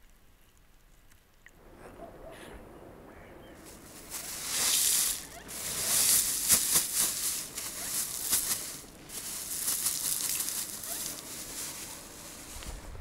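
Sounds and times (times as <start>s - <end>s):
corn kernels rattling onto stones: 3.6s - 12.6s
plastic bag crinkling: 3.6s - 12.8s.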